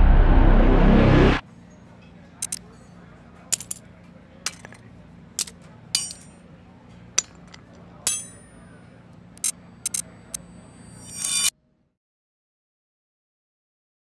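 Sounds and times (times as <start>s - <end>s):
low steady hum: 0.0s - 1.7s
metallic clinks and clangs: 2.4s - 6.4s, 7.2s - 8.7s.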